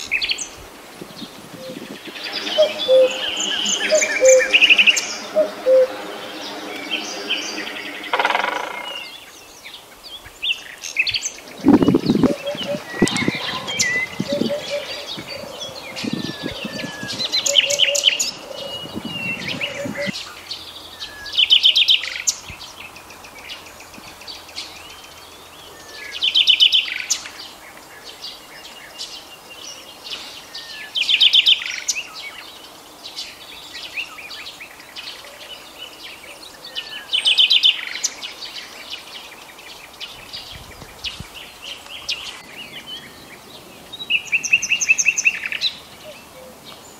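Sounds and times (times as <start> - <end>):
birds chirping and whistling: 0.0 - 22.8
bird fast trill: 2.0 - 9.3.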